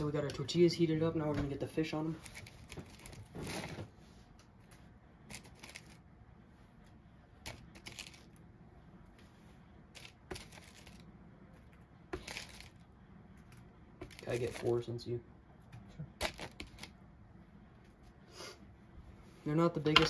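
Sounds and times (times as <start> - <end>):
paper towels rustling: 2.0 - 4.4, 14.0 - 14.8.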